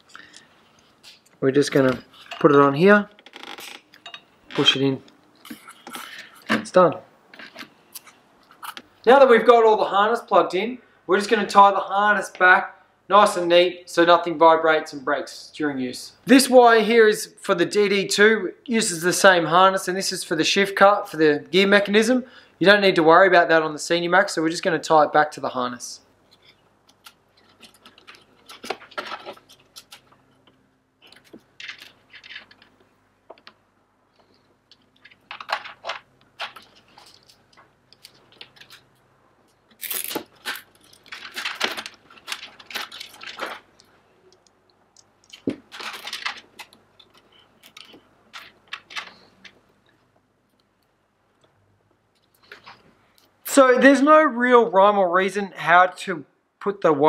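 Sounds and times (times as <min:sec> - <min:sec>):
rustling handling noise: 0:26.2 - 0:50.8.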